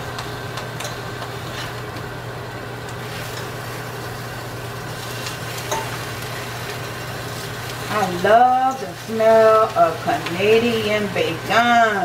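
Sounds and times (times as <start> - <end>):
stove fan humming: 0.0 - 12.0.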